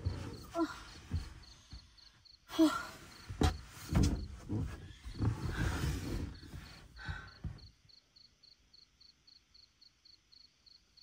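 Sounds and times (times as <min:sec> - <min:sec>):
rustling of bedding: 0:00.0 - 0:07.6
crickets chirping: 0:00.0 - 0:11.0.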